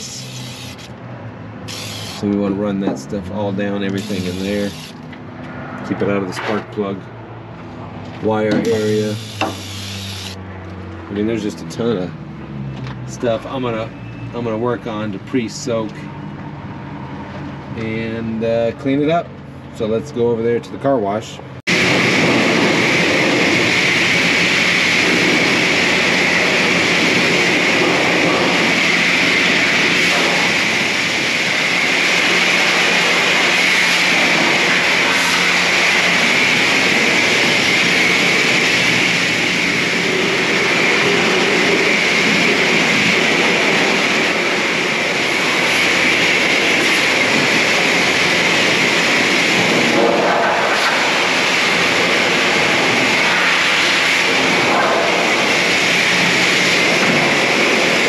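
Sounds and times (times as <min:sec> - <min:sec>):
spray wand hissing: 0:09.2 - 0:10.3.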